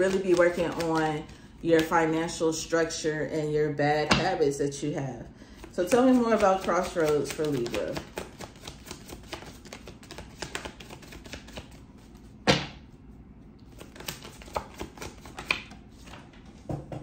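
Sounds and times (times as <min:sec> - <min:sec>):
cards being shuffled: 0:00.0 - 0:02.0, 0:05.6 - 0:12.1, 0:13.6 - 0:16.3.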